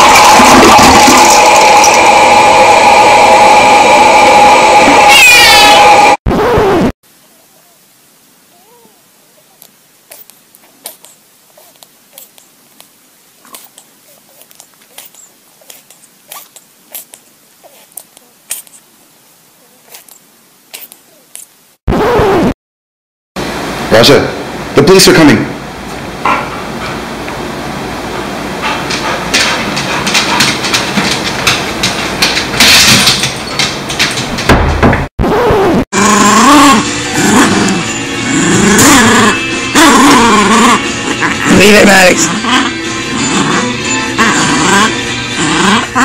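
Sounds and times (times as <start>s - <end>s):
rush of noise: 0.0s - 6.8s
young animal squeaking: 8.6s - 12.5s, 13.5s - 18.8s
handling noise: 9.6s - 18.9s.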